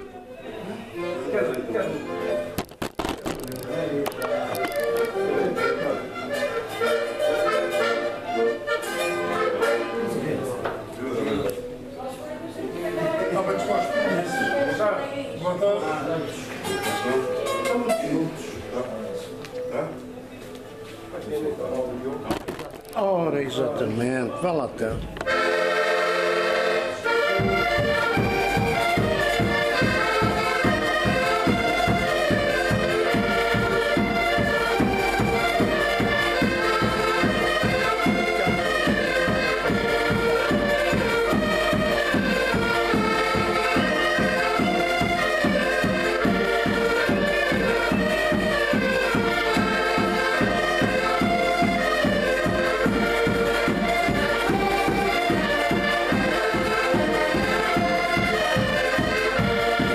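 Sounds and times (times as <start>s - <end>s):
accordions playing lively tune: 0.0s - 22.2s, 23.0s - 59.9s.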